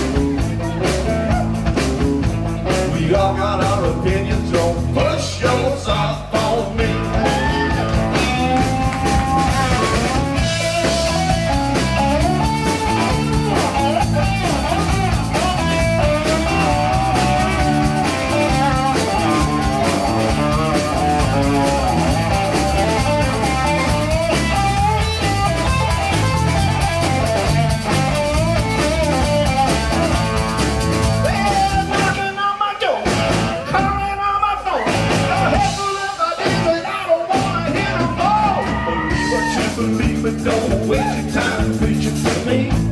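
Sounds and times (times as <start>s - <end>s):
live rock band playing: 0.0s - 42.9s
electric guitar lead with bends: 6.7s - 32.2s.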